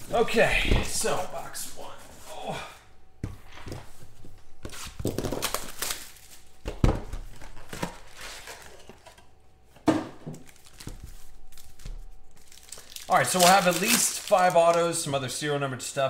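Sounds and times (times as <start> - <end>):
foil packs tearing and crinkling: 4.8 - 6.6, 10.4 - 15.2.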